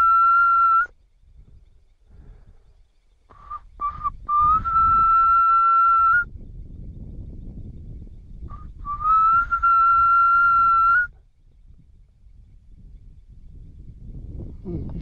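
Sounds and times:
gourd whistle blown: 0.0s - 0.9s, 3.4s - 6.3s, 8.5s - 11.1s.

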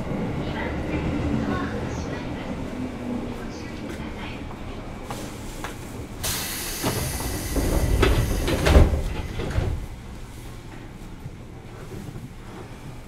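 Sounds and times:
pneumatic train doors hissing: 6.2s - 9.8s
doors knocking and thudding open: 7.6s - 9.9s.

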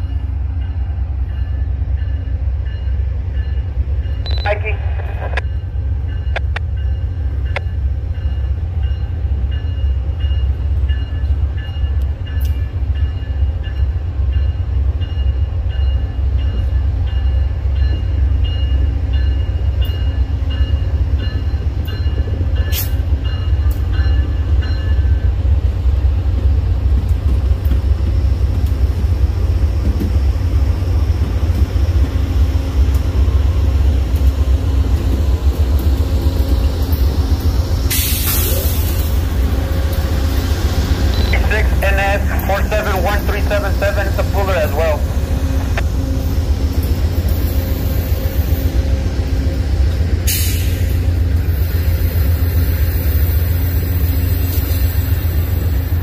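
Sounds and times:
locomotive bell ringing: 0.0s - 25.3s
diesel locomotive engine rumble: 0.0s - 56.0s.

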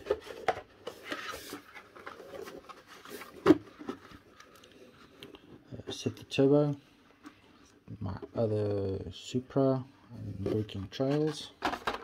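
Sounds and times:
cardboard and plastic rustling: 0.0s - 6.1s.

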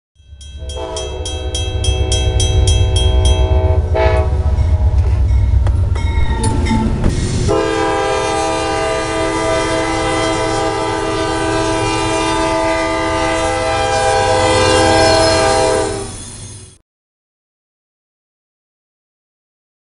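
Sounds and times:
railroad crossing bell ringing: 0.2s - 8.0s
freight train rumble: 0.2s - 16.8s
locomotive air horn chord: 0.6s - 5.5s, 7.5s - 16.2s.

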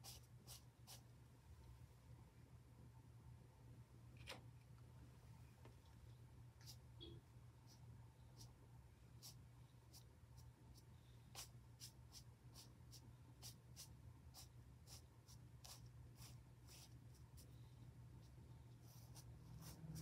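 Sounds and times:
ink brush swishing on paper: 18.2s - 20.0s.

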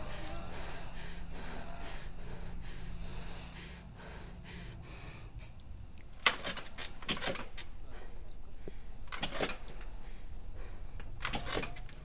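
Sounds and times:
low steady hum: 0.0s - 6.2s.

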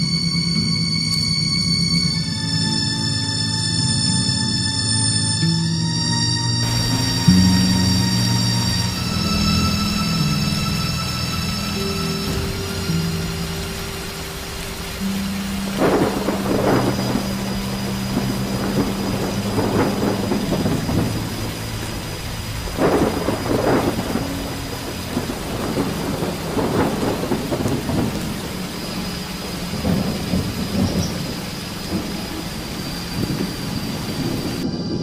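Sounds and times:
heavy rain: 0.0s - 35.0s
thunder rolling: 6.6s - 35.0s.

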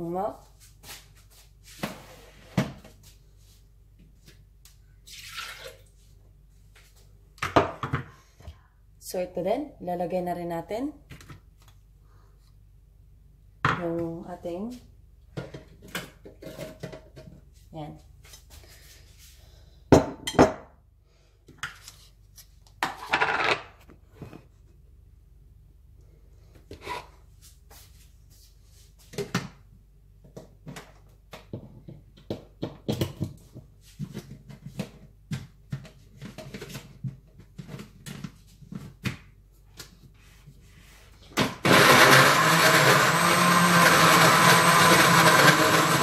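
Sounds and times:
electric blender running: 41.5s - 46.0s.

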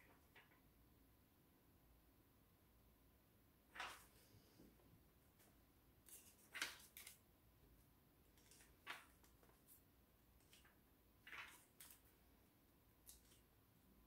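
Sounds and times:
faint paper rustles: 3.7s - 7.2s, 8.3s - 12.2s, 13.0s - 13.6s.

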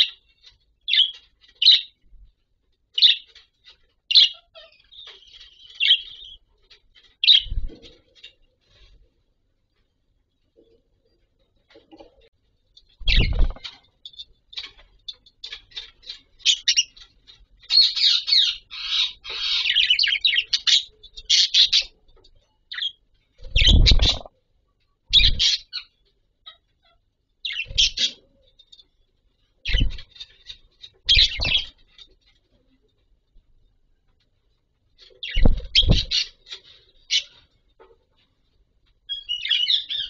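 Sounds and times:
budgerigars chirping and warbling: 0.0s - 2.0s, 3.0s - 8.5s, 12.8s - 22.0s, 22.6s - 24.3s, 25.1s - 28.9s, 29.6s - 32.3s, 35.0s - 37.6s, 39.1s - 40.0s.

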